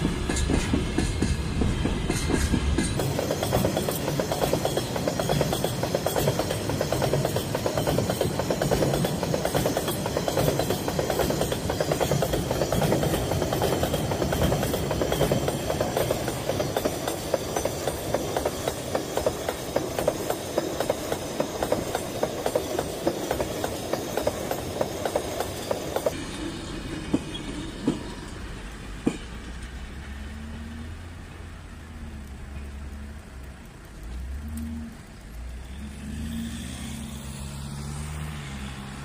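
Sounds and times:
train wheels clacking over rail joints: 0.0s - 29.9s.

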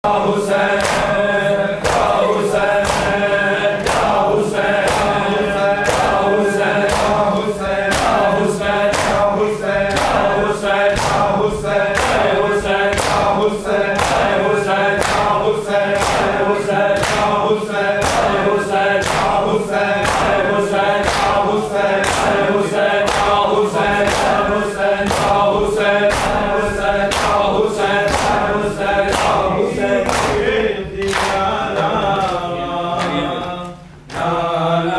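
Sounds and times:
men chanting in unison: 0.0s - 34.9s
hands slapping chests: 0.8s - 1.2s, 1.8s - 3.2s, 3.8s - 4.2s, 4.8s - 5.2s, 5.8s - 6.2s, 6.8s - 7.2s, 7.9s - 8.3s, 8.9s - 9.3s, 10.9s - 11.3s, 11.9s - 12.3s, 12.9s - 13.3s, 14.0s - 14.4s, 15.0s - 15.3s, 16.0s - 16.4s, 17.0s - 17.4s, 18.0s - 18.4s, 19.0s - 19.4s, 20.0s - 20.4s, 21.0s - 21.4s, 22.0s - 22.4s, 23.0s - 23.4s, 24.0s - 25.5s, 26.1s - 26.4s, 27.1s - 27.4s, 28.0s - 28.5s, 29.1s - 29.4s.

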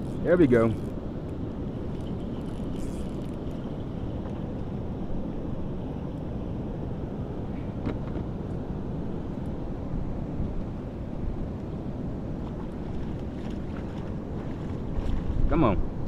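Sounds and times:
wind buffeting microphone: 12.1s - 16.0s.

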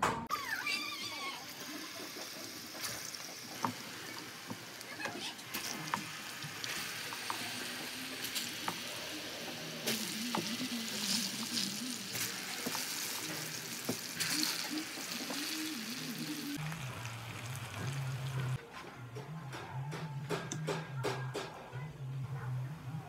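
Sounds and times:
food sizzling in hot oil: 0.6s - 18.6s.

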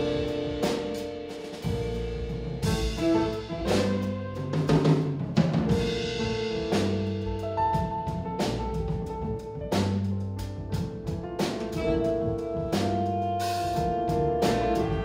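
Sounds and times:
drum kit cymbal and drum accents: 0.0s - 15.0s
plucked double bass: 1.6s - 15.0s
saxophone with vibrato: 11.8s - 15.0s.

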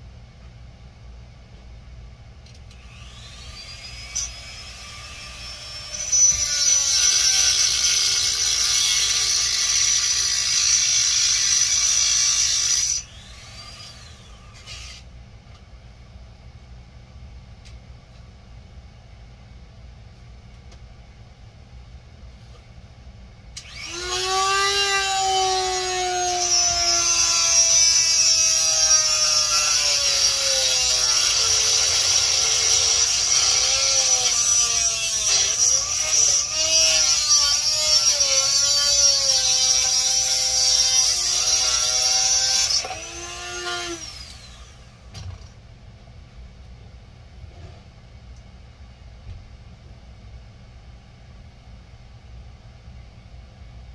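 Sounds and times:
power tool winding down whine: 2.7s - 15.0s, 23.6s - 45.0s
electric power tool cutting coral: 2.8s - 15.0s, 23.6s - 44.9s.

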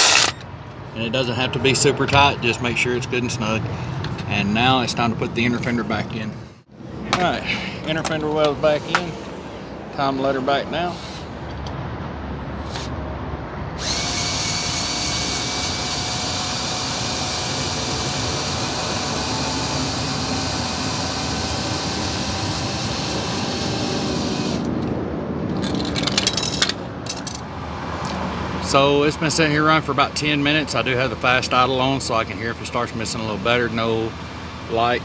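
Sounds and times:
power drill running: 0.0s - 0.4s, 13.8s - 24.7s.

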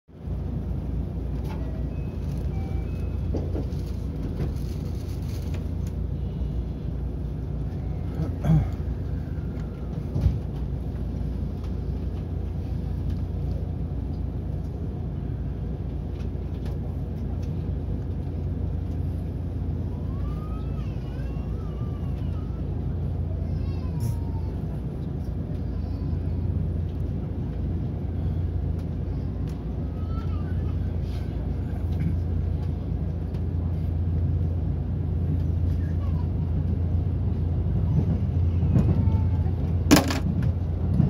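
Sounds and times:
train carriage hum: 0.1s - 41.0s
thumps in train: 3.2s - 5.8s, 9.6s - 12.3s, 37.9s - 41.0s.

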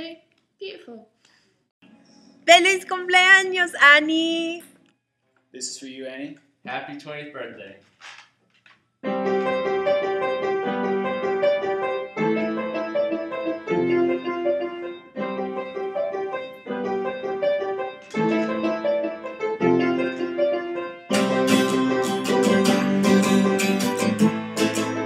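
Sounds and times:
piano playing chords: 9.0s - 25.0s
acoustic guitar strummed chords: 21.1s - 25.0s.

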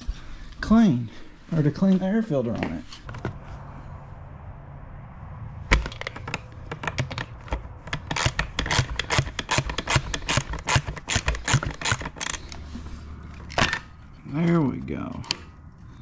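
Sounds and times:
ratchet wrench clicking: 7.8s - 12.6s.

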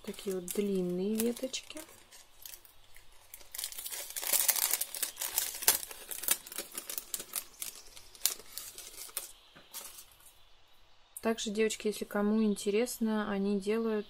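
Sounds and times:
plastic packet crinkling: 0.0s - 10.3s.

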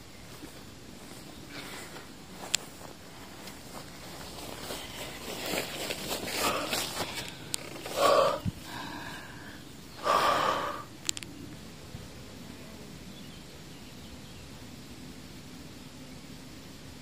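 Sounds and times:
faint outdoor hiss: 0.0s - 17.0s
person exhaling heavily: 6.3s - 10.9s.

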